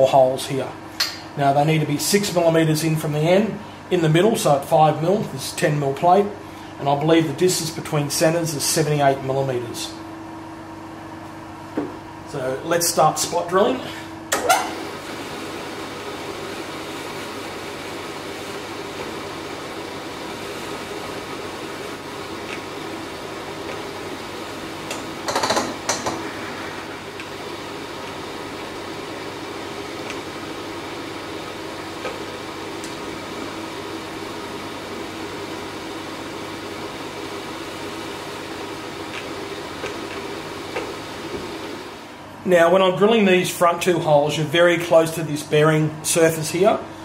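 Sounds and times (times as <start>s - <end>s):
electric motor hum: 6.7s - 42.6s.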